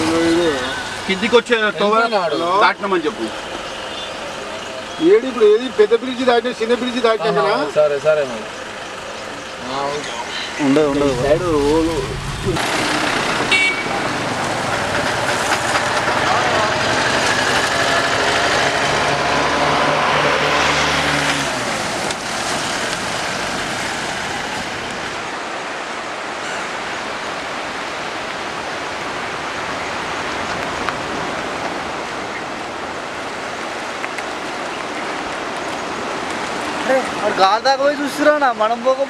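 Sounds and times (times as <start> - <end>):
river rushing in flood: 0.0 - 39.0
auto-rickshaw engine passing: 7.8 - 25.4.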